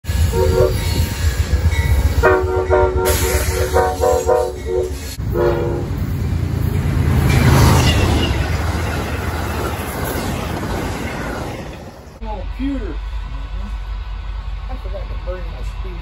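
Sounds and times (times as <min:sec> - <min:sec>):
locomotive engine rumble: 0:00.0 - 0:16.0
train wheels on rails: 0:00.0 - 0:16.0
locomotive horn blasts: 0:00.2 - 0:01.0, 0:02.2 - 0:06.1.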